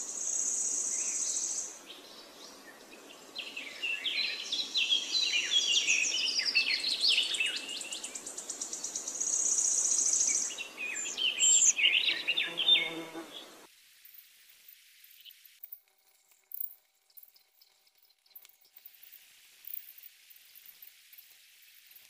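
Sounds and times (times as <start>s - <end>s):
birds chirping: 0.0s - 13.7s.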